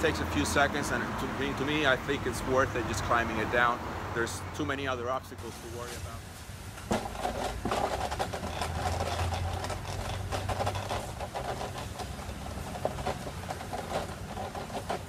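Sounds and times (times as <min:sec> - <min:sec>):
shoes and hands knocking wood: 0:06.8 - 0:15.0.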